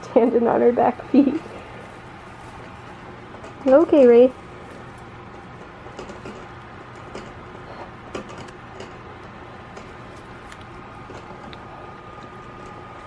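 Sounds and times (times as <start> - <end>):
background hum: 0.0 - 13.0
guinea pig licking and chewing: 4.4 - 12.4.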